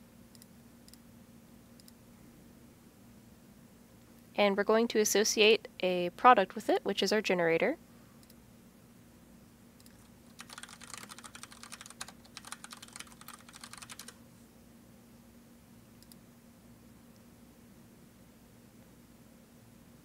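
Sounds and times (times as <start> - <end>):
faint steady hum: 0.0 - 20.0
typing on computer keyboard: 9.8 - 14.2.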